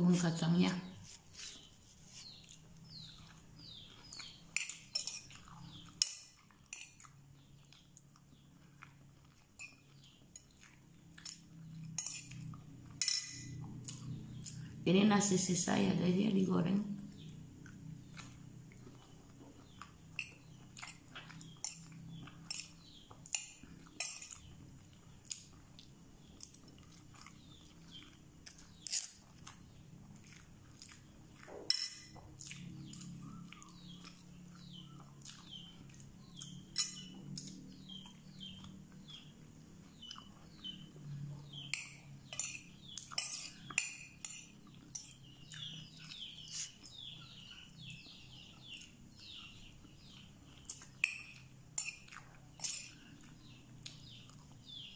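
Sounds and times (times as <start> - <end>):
soft chewing: 0.0 - 14.9, 17.0 - 54.9
small birds chirping: 0.0 - 54.9
metal spoon clinking on plate: 4.6 - 5.3, 12.0 - 12.3, 13.0 - 13.6, 31.7 - 32.2, 36.7 - 37.1, 41.7 - 45.2, 51.0 - 52.9.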